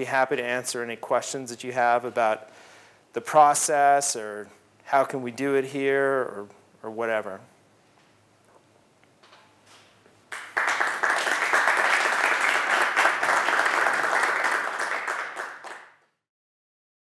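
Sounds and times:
audience applauding: 0:10.3 - 0:16.0.

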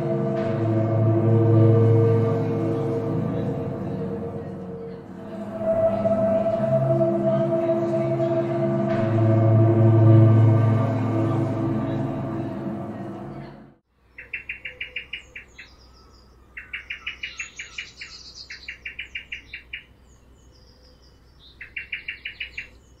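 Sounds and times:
gong-like musical tone: 0:00.0 - 0:13.8
birds chirping rapidly: 0:11.3 - 0:23.0.

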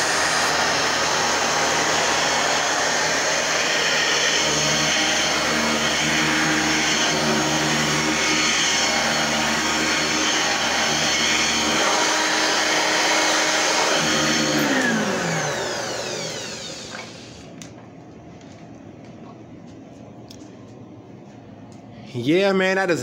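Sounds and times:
vacuum motor spinning down: 0:00.0 - 0:17.6
vacuum cleaner running: 0:00.0 - 0:17.8.

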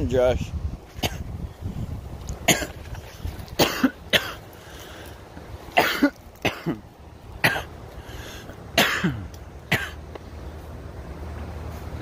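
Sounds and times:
person coughing: 0:02.5 - 0:02.8, 0:03.6 - 0:04.4, 0:05.8 - 0:06.8, 0:07.4 - 0:07.7, 0:08.8 - 0:10.0.

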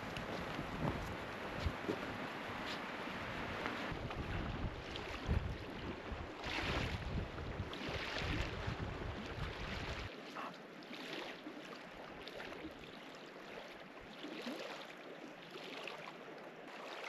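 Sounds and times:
wind buffeting microphone: 0:00.0 - 0:02.6, 0:03.2 - 0:10.1
rushing outdoor noise: 0:00.0 - 0:07.4.

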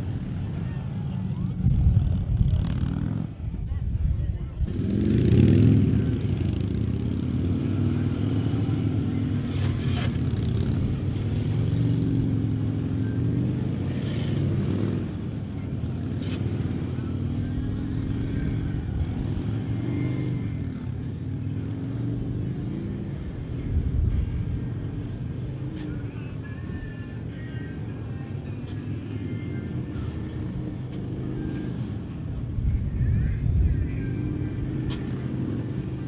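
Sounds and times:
motorcycle engines at low speed: 0:00.0 - 0:36.0.

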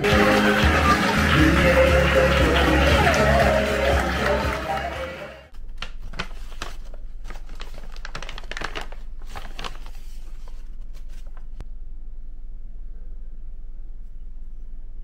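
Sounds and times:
background music: 0:00.0 - 0:05.5
paper bags rustling: 0:05.6 - 0:11.6.

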